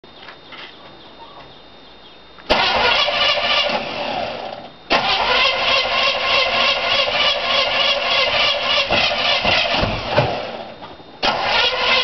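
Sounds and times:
engine exhaust running: 2.5s - 12.0s.

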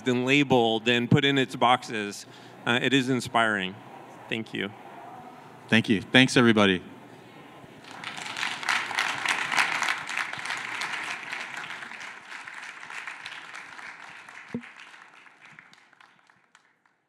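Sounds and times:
audience applauding: 7.8s - 17.0s.

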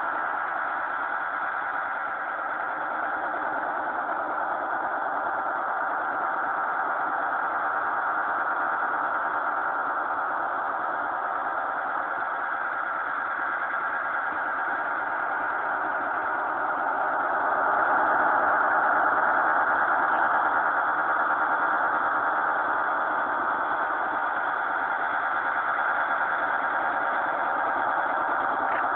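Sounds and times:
radio static: 26.4s - 28.9s.

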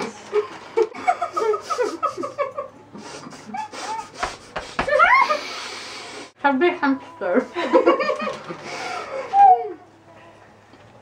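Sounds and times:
muffled laughter: 0.3s - 4.2s
breathy nasal exhales: 5.4s - 6.4s.

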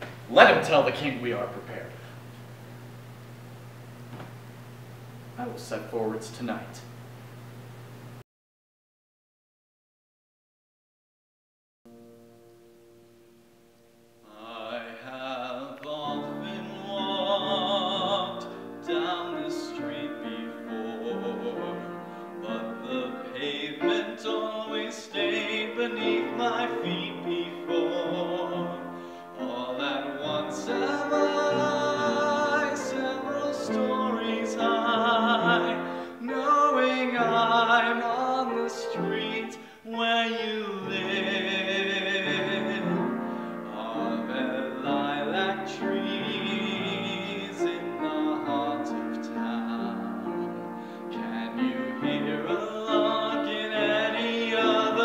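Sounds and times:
upright piano: 11.9s - 55.0s
man singing with vibrato: 14.2s - 55.0s.

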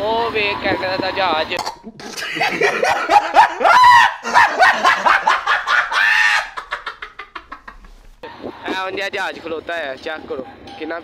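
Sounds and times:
man laughing loudly: 1.8s - 9.2s.

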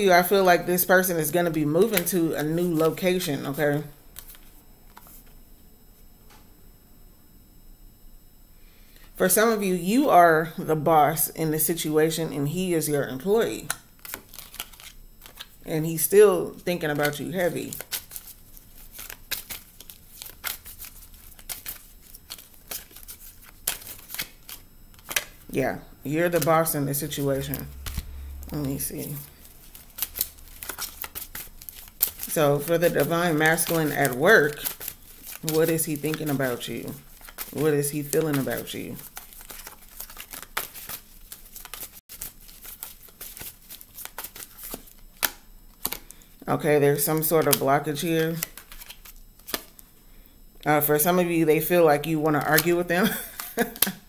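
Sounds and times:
cards being shuffled: 13.6s - 15.6s, 16.8s - 25.4s, 26.2s - 46.2s, 48.3s - 49.8s, 52.3s - 54.0s.

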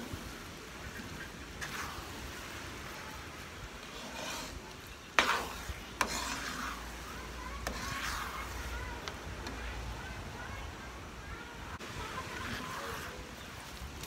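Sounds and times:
pan bubbling and sizzling: 0.0s - 14.0s
metal spoon stirring: 1.6s - 2.2s, 3.8s - 9.6s.

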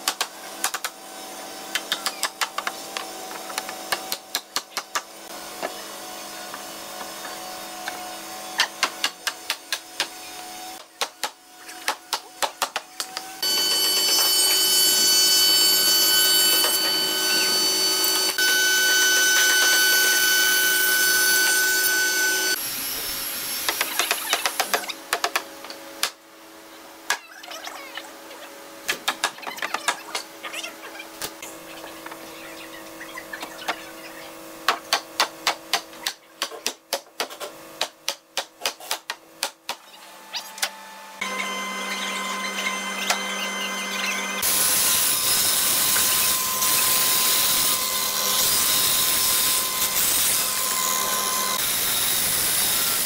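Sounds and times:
power tool whining: 13.1s - 24.1s, 41.2s - 53.0s.

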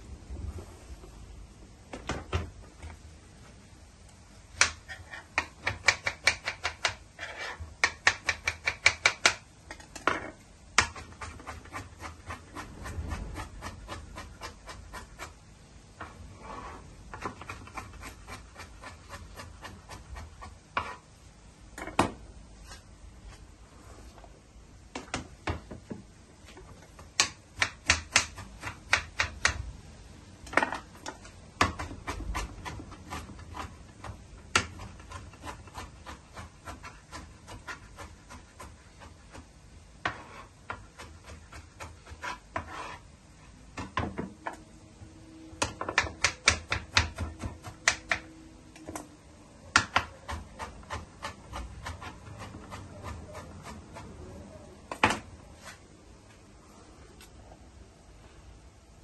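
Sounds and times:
knife chopping on plastic board: 4.6s - 7.0s, 7.8s - 9.4s, 10.8s - 12.7s, 27.0s - 29.6s, 45.6s - 48.2s, 49.8s - 54.1s.

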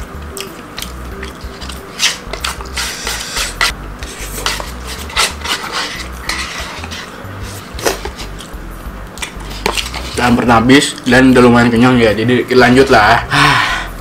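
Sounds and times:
plastic spoon scraping paper cup: 1.6s - 8.5s.

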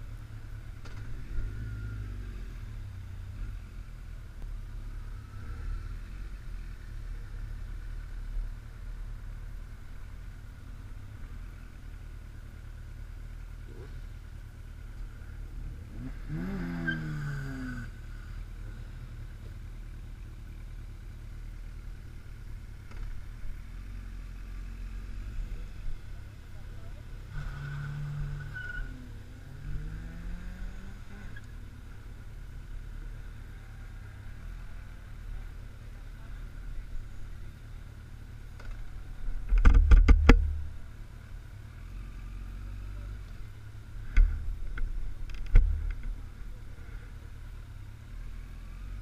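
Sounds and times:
vehicle engine revving: 0.0s - 9.1s, 13.4s - 19.6s, 22.0s - 40.9s, 41.5s - 49.0s
motorcycle engine idling: 0.0s - 16.2s, 17.9s - 27.3s, 31.4s - 41.7s.

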